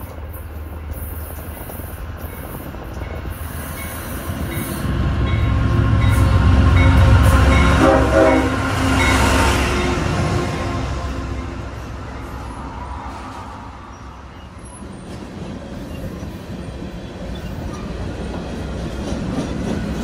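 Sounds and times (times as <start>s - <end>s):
diesel locomotive engine rumble: 0.0s - 20.0s
train horn: 4.5s - 12.0s.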